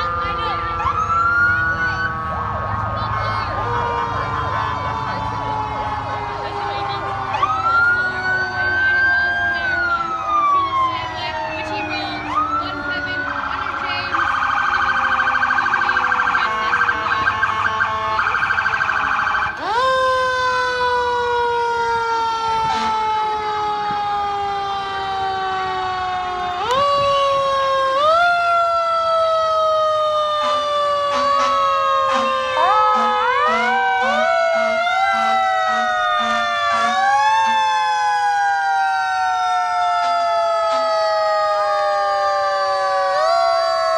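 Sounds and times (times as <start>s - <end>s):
fast warbling siren: 0.0s - 43.9s
fire engine sirens wailing: 0.0s - 43.9s
rising siren whoops: 0.0s - 43.9s.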